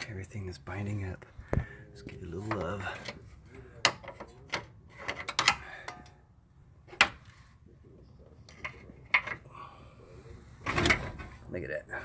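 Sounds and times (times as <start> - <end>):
metallic clicks and knocks: 3.8 - 6.2.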